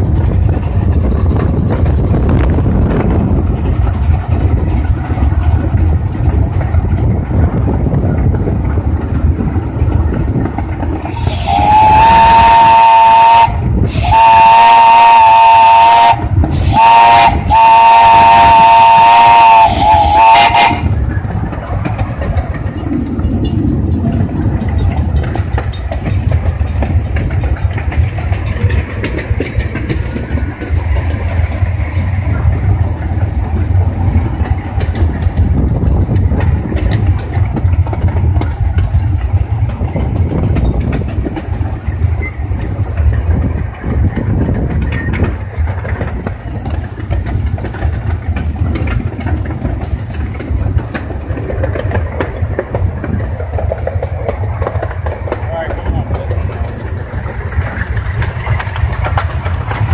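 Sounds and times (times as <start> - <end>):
steam locomotive rumbling: 0.0 - 59.9
steam locomotive chime whistle: 11.1 - 20.9.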